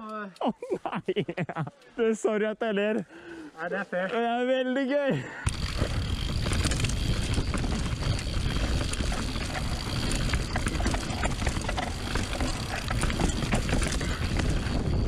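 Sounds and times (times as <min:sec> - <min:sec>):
bike chain and frame rattling: 0:05.4 - 0:15.0
bike tyres rumbling over dirt: 0:05.4 - 0:15.0.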